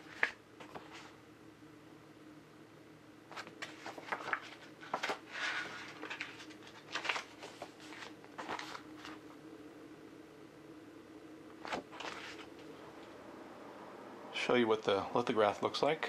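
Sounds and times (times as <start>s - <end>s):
paper pages rustling: 0.0s - 1.2s, 3.3s - 9.2s, 11.6s - 12.7s.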